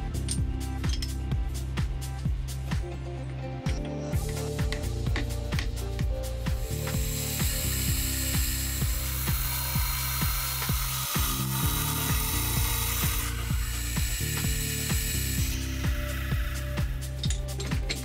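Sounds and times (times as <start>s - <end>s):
music with steady beat: 0.0s - 18.0s
milling spindle hiss and whine: 6.3s - 18.0s.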